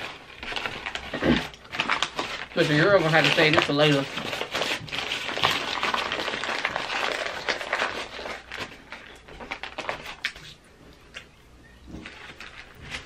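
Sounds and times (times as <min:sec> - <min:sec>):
foil paper wrapper crinkling: 0:00.0 - 0:11.3, 0:11.9 - 0:13.0.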